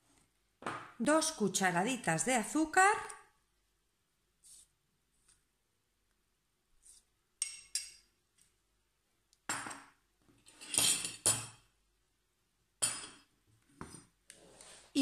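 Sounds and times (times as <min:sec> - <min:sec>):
metal spoon clinking dishes: 0:07.4 - 0:08.1.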